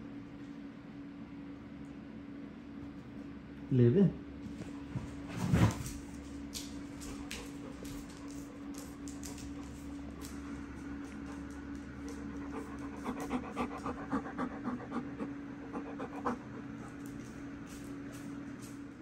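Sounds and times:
dog panting: 6.9s - 18.4s.

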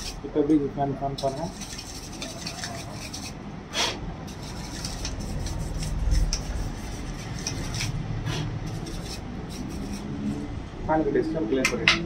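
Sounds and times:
light rubbing: 1.2s - 3.4s, 4.3s - 10.5s.

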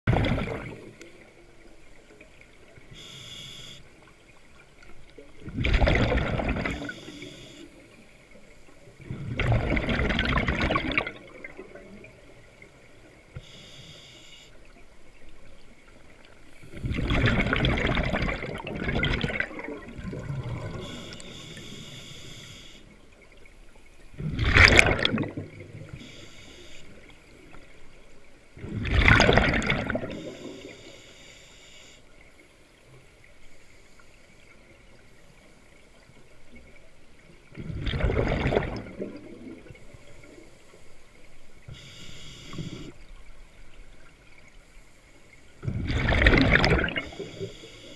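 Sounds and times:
exhaust bubbles rushing: 0.1s - 0.8s, 5.5s - 6.8s, 9.1s - 11.2s, 16.8s - 20.8s, 24.2s - 25.6s, 37.6s - 39.7s, 45.7s - 47.0s
regulator hiss on inhale: 2.9s - 3.9s, 6.8s - 8.0s, 13.4s - 14.6s, 20.7s - 23.0s, 25.9s - 27.1s, 30.1s - 32.2s, 41.6s - 43.0s, 47.0s - 47.9s.

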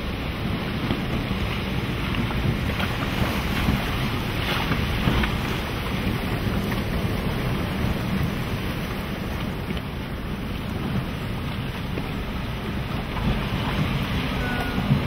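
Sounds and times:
rough sea wash: 0.0s - 15.0s
wind buffeting microphone: 0.0s - 15.0s.

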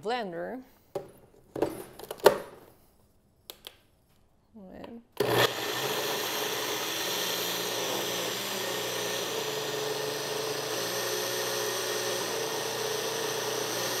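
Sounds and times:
blender motor whine: 5.2s - 14.0s.

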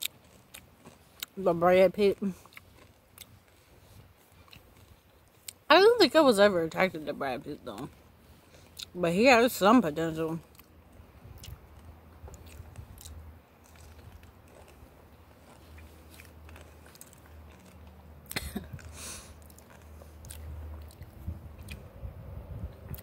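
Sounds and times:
person chewing crunchy food: 0.0s - 5.7s, 7.6s - 9.0s, 10.4s - 22.0s
wind rumble on microphone: 20.6s - 23.0s.

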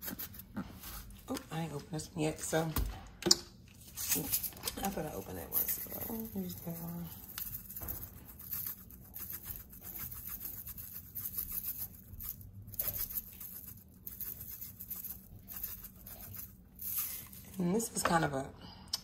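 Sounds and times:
spice grinder rasping: 4.0s - 17.5s.

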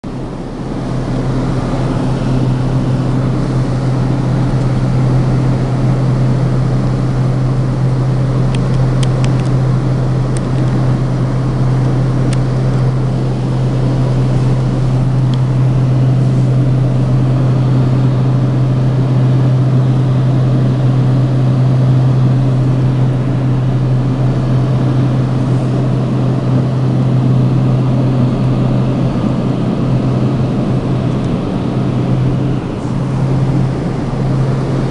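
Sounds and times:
engine and airflow rush: 0.0s - 34.9s
propeller drone: 0.0s - 34.9s.

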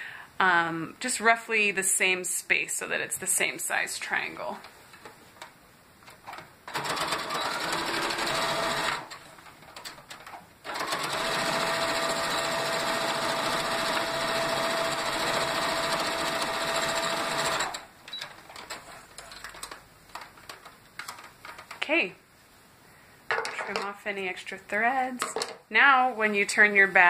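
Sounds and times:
sewing machine motor whine: 6.7s - 9.1s, 10.7s - 17.8s.

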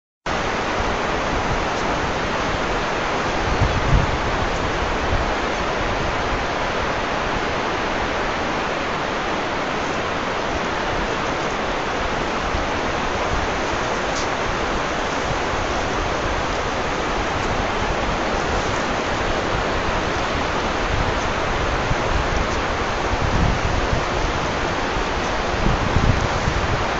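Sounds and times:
running water rushing: 0.3s - 26.9s.

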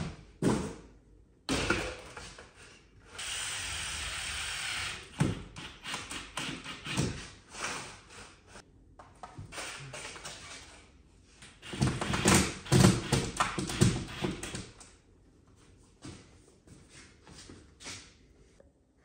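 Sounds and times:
cordless drill boring into wall: 3.1s - 7.1s, 11.6s - 14.7s.

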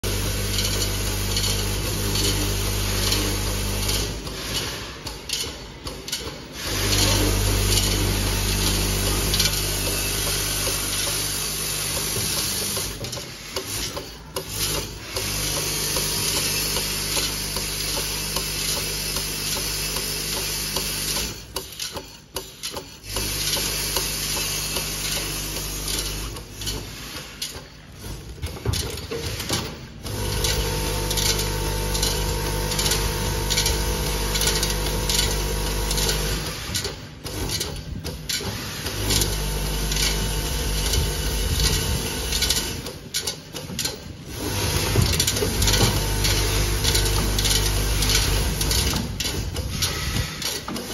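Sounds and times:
screws rattling on feed track: 0.1s - 50.9s.

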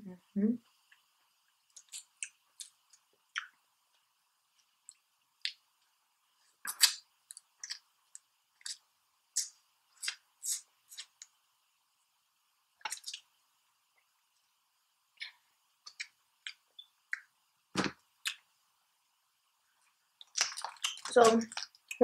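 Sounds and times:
wet mouth smacks: 1.7s - 3.5s, 6.7s - 7.8s, 20.2s - 22.0s
crab shell crackling: 20.1s - 22.0s.

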